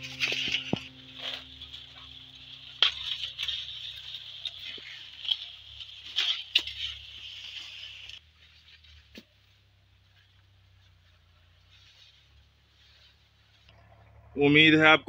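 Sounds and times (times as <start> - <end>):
corn ears snapping: 0.0 - 8.2
dry corn leaves rustling: 0.0 - 14.2.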